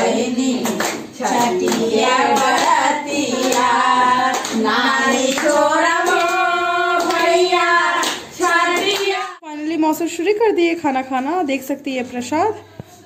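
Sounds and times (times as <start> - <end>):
women singing folk song: 0.0 - 9.4
hand claps: 0.5 - 9.2.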